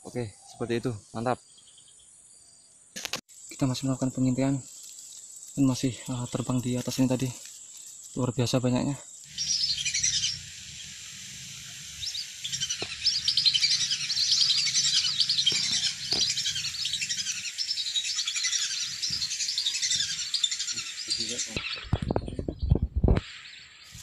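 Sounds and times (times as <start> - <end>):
ducks whistling in flight: 9.3 - 22.0.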